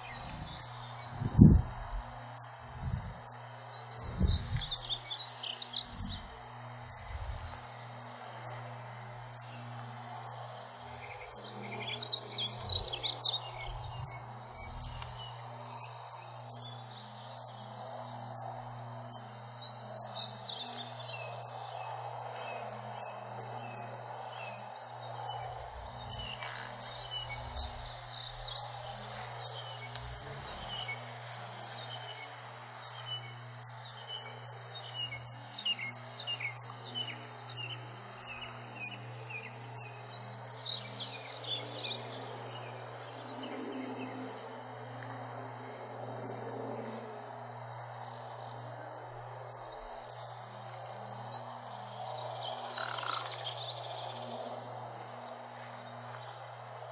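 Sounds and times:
birds calling: 0.0s - 8.2s, 8.9s - 15.5s, 24.5s - 33.5s, 52.2s - 54.0s
faint low hum: 0.0s - 18.6s, 19.9s - 35.4s
insect chorus pulsing: 0.0s - 56.9s.

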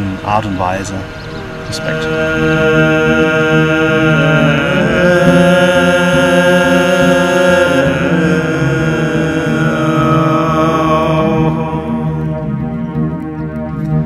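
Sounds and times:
chanting voices holding long notes: 0.0s - 14.0s.

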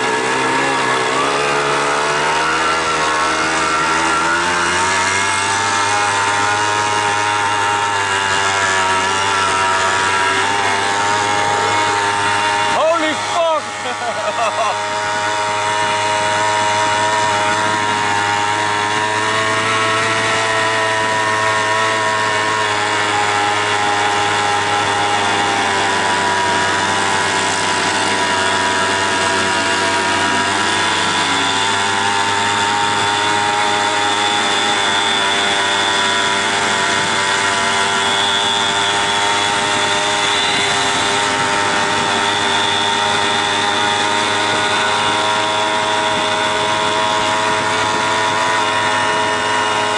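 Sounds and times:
moped engine running: 0.0s - 49.9s.

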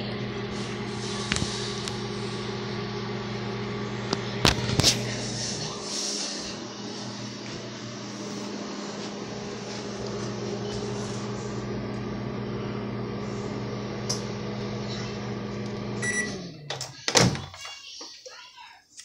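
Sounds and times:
microwave oven humming: 0.0s - 17.0s
microwave beeping: 9.1s - 17.0s.

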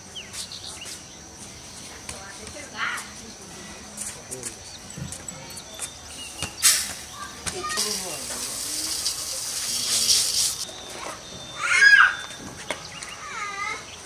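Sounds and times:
food sizzling in hot oil: 6.6s - 10.7s.

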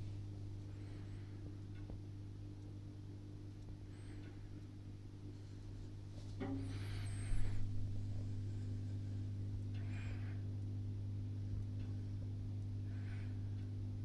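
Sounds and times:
aquarium equipment electrical hum: 0.0s - 14.0s
soft rustles: 5.3s - 9.3s.

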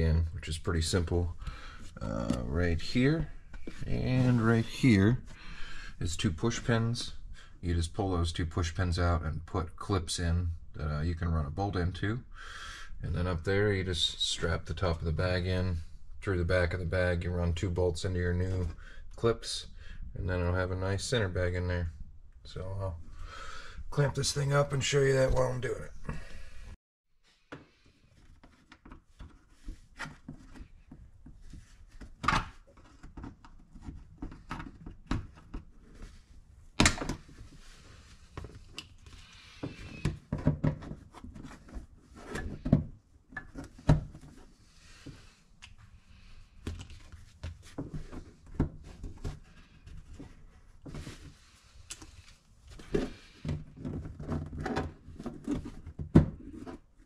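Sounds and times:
clicks and knocks of plastic fasteners: 28.2s - 36.1s, 51.9s - 56.9s.

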